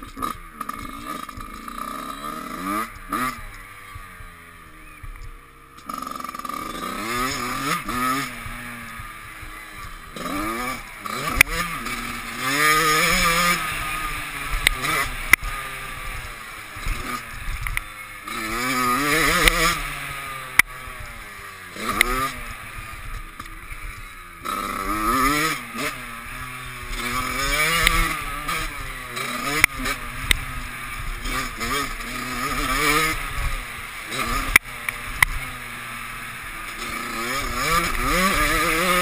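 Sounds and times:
dirt bike engine revving: 0.0s - 39.0s
sharp clicks: 14.5s - 15.5s, 16.8s - 17.9s, 19.2s - 19.8s, 26.9s - 30.5s, 34.1s - 35.6s.

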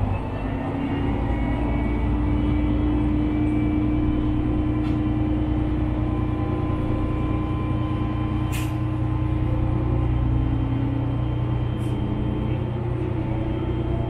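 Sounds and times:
train engine humming: 0.0s - 14.0s
sharp click: 8.5s - 8.8s.

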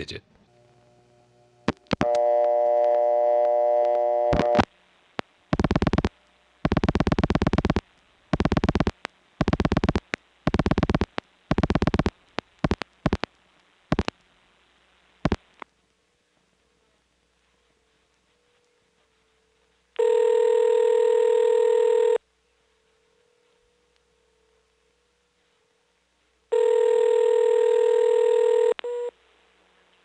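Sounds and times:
buzzy telephone dial tone: 1.7s - 4.7s, 5.6s - 6.1s, 8.4s - 13.3s, 20.0s - 22.2s, 26.5s - 29.1s.

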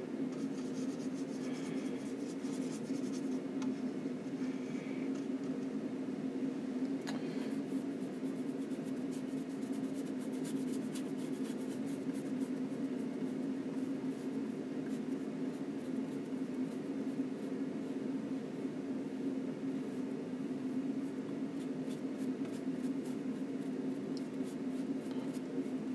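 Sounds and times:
steady low hum: 0.0s - 25.9s
brush scrubbing paint on panel: 0.4s - 3.4s.

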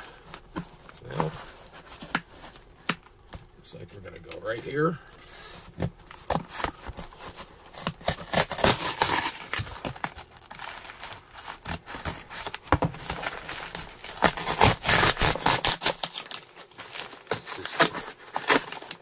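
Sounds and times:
cardboard tearing and rustling: 0.0s - 3.1s, 5.4s - 19.0s
scissors cutting packing tape: 7.7s - 10.0s, 11.5s - 16.4s.

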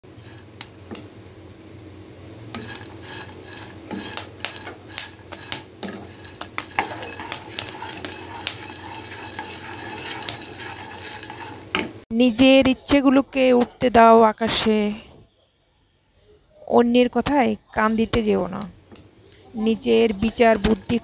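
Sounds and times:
popcorn rustling: 2.5s - 12.0s, 19.9s - 21.0s
spatula scraping and knocking pan: 2.5s - 12.1s, 19.9s - 21.0s.

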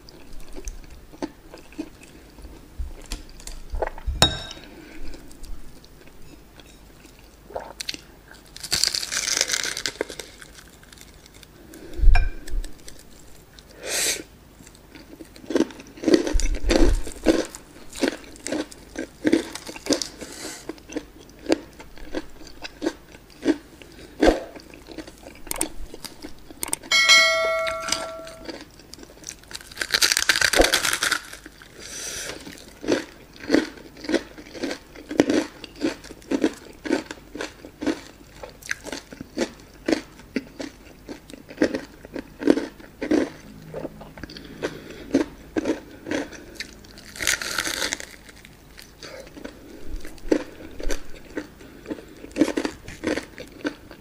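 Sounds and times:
brief ringing tone: 26.9s - 28.5s
crunchy bites: 45.1s - 49.5s.

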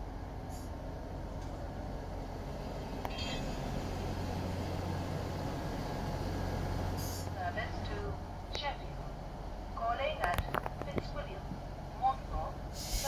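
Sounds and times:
train diesel engines droning: 0.0s - 13.0s
high squeal: 3.1s - 3.6s.

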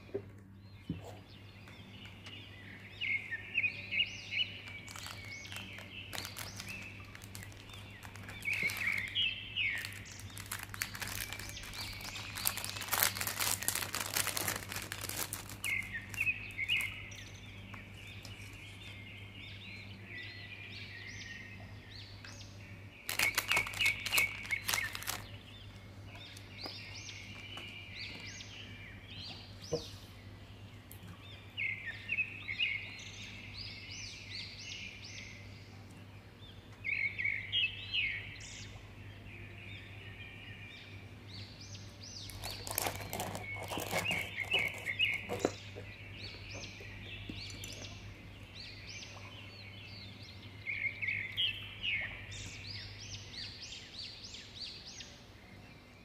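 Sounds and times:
small birds chirping and twittering: 0.0s - 56.0s
packets crinkling: 4.6s - 17.0s, 23.1s - 25.4s, 42.2s - 45.6s.

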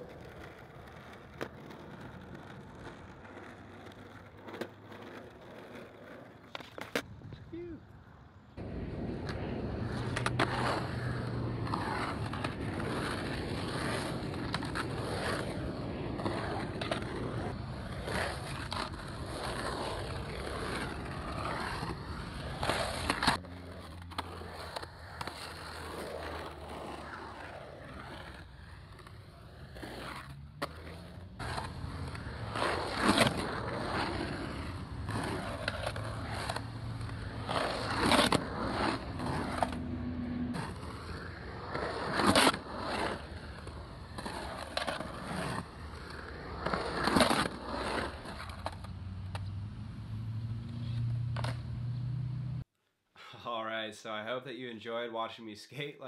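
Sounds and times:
skateboard clacks: 0.0s - 7.4s, 8.6s - 21.8s
skateboard wheels rolling on concrete: 0.0s - 52.7s.

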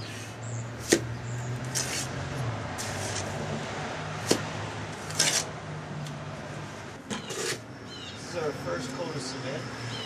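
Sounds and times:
trowel scraping cement: 1.6s - 3.4s, 5.0s - 5.5s, 7.1s - 7.7s.

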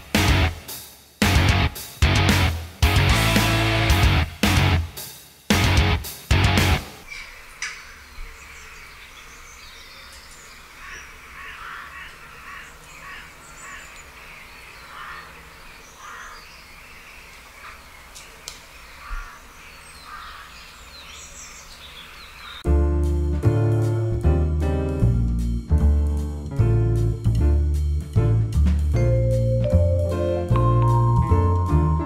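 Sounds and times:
birds calling: 7.0s - 22.7s.

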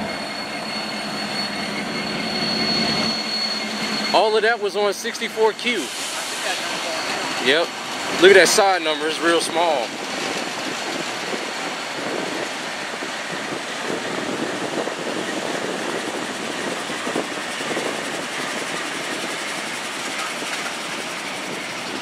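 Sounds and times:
diesel locomotives rolling past: 0.0s - 22.0s.

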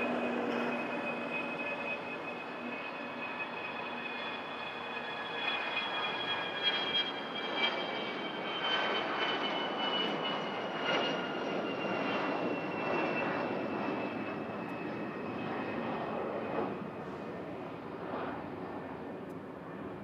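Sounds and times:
jet engines whining: 0.0s - 20.0s.

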